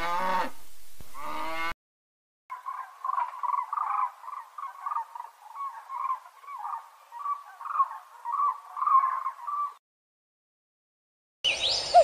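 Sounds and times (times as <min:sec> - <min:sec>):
crane calling: 0:02.5 - 0:09.8.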